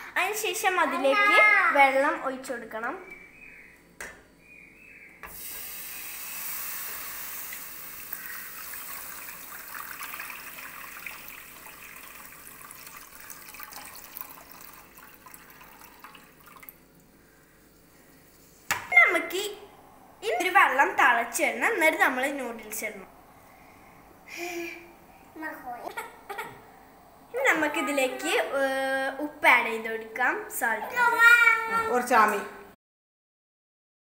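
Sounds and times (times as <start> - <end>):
water pouring into a pot: 5.4 - 17.1.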